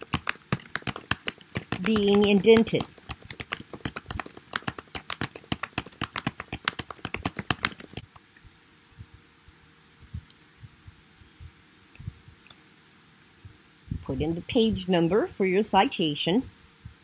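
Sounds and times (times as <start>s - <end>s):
typing on keyboard: 0.0s - 8.2s.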